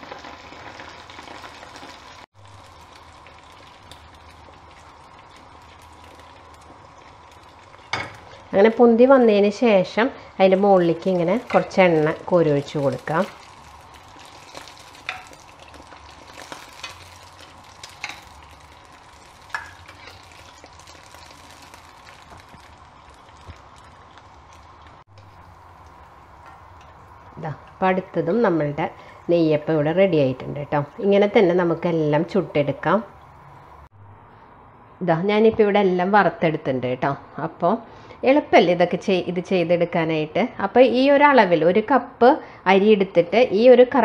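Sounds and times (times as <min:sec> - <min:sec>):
batter deep-frying in oil: 0:00.0 - 0:33.9.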